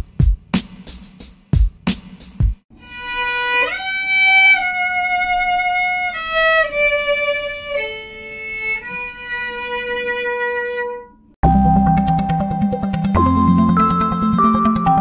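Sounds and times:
slow melody on lone instrument: 0:02.8 - 0:11.3.

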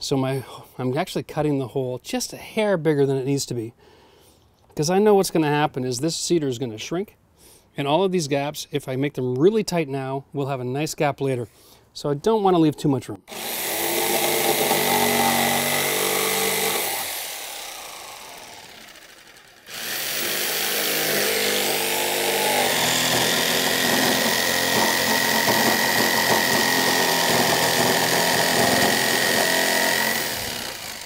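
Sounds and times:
jigsaw cutting wood: 0:13.3 - 0:31.0.

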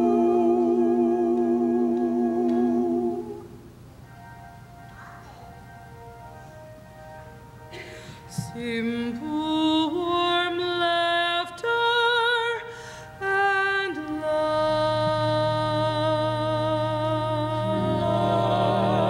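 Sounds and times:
woman singing with vibrato: 0:00.0 - 0:03.7, 0:08.3 - 0:19.0
low steady accompaniment: 0:00.0 - 0:19.0.

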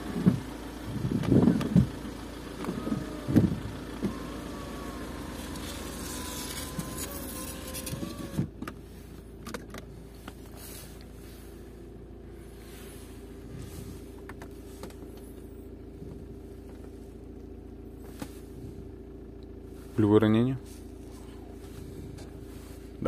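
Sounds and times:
electric motor whine: 0:00.0 - 0:08.6
steady low hum: 0:00.0 - 0:23.0.

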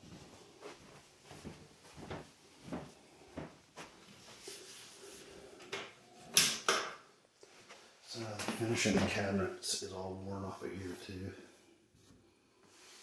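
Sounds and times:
footsteps on tiles: 0:00.0 - 0:04.8.

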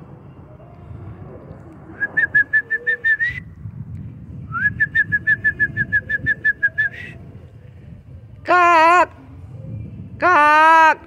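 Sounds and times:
person whistling quick notes: 0:02.0 - 0:03.5.

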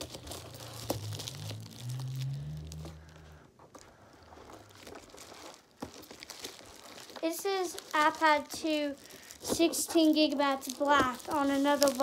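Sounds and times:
low hum: 0:00.1 - 0:05.0.

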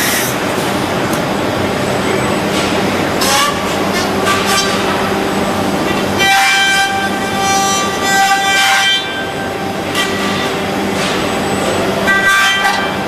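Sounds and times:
hiss: 0:00.0 - 0:00.4
machine hum: 0:00.0 - 0:13.0.

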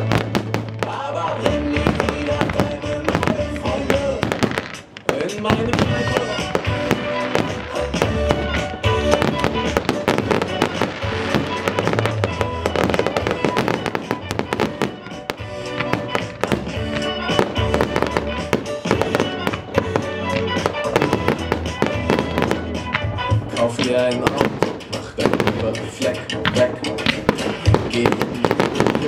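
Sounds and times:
fireworks bangs and crackling: 0:00.0 - 0:29.0
loud music: 0:00.0 - 0:29.0.

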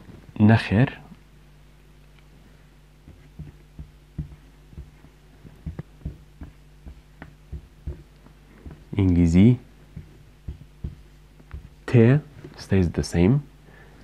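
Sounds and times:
steady low hum: 0:00.0 - 0:14.0
marker writing on whiteboard: 0:03.1 - 0:11.8.

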